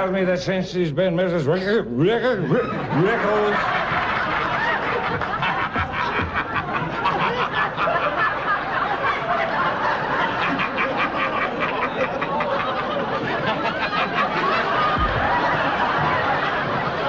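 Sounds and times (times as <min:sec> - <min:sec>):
audience laughing: 0:02.2 - 0:17.0.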